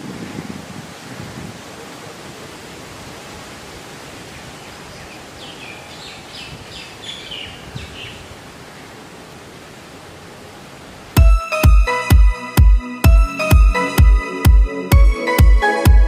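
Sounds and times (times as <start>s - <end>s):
wind through leaves: 0.0s - 11.2s
bird chirping: 4.9s - 8.4s.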